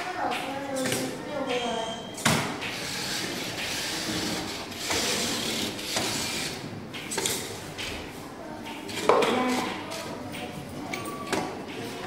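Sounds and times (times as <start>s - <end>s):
robot motors whirring: 2.8s - 6.6s.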